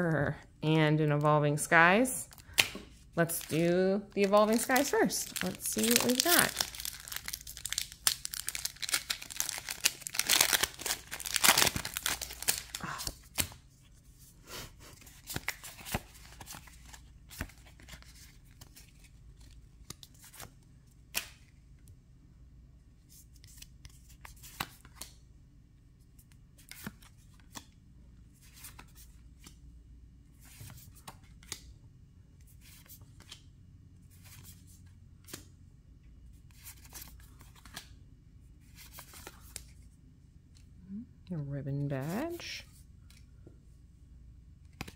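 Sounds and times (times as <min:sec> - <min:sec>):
trading cards clicking and rustling: 0:02.4 - 0:13.6
foil wrapper tearing and crinkling: 0:04.5 - 0:13.0.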